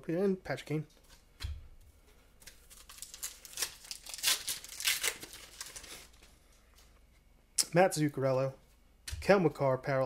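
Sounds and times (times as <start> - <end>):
foil wrapper tearing and crinkling: 2.4 - 6.2.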